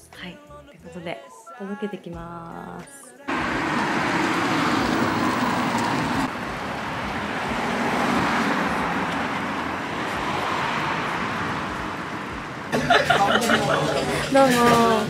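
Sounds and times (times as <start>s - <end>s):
car passing close: 3.3s - 14.4s
cars going by: 3.3s - 15.0s.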